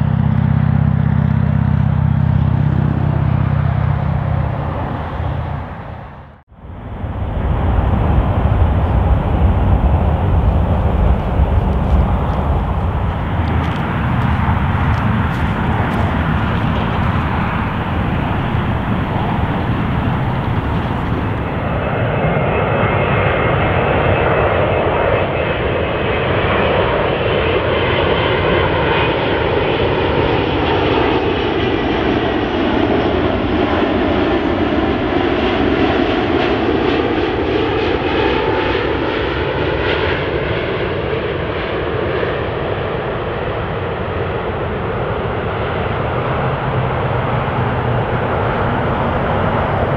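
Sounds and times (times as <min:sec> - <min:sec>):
high engine whine: 0:00.0 - 0:27.7, 0:38.0 - 0:49.9
jet engine roar: 0:00.0 - 0:49.9.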